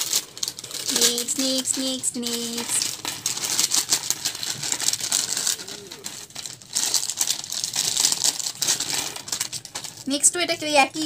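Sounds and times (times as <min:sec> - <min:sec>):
foil snack packet crinkling: 0:00.0 - 0:11.0
snack pieces pattering on plate: 0:02.5 - 0:10.1.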